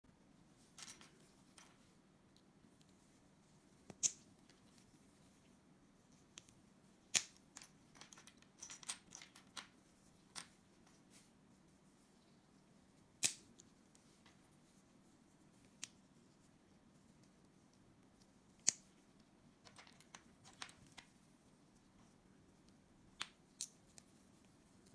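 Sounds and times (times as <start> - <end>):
light clicks and rattles: 0.6 - 3.0, 7.2 - 11.2, 18.6 - 21.2
plastic blocks clicking together: 7.1 - 9.7, 19.6 - 21.1.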